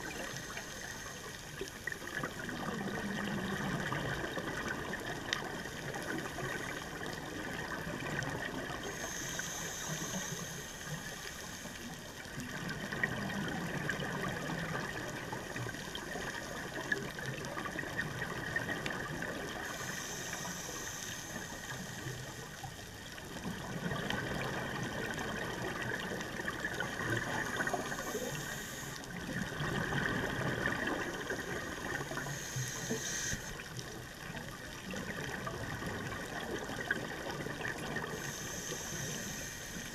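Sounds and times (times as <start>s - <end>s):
regulator hissing inhalations: 8.8s - 11.9s, 19.6s - 22.3s, 27.4s - 29.0s, 32.1s - 33.6s, 38.2s - 39.9s.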